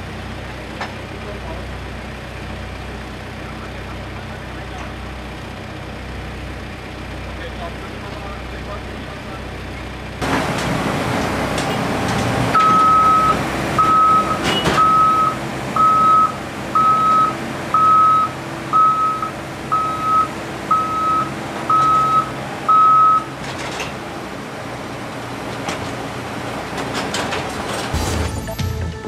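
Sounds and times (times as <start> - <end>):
low engine hum: 0.0 - 27.9
cargo loader warning beeps: 12.6 - 23.4.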